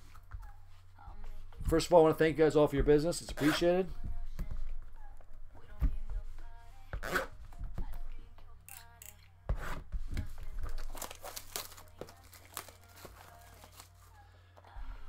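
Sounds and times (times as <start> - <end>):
packing tape tearing: 7.0 - 7.3, 10.6 - 14.1.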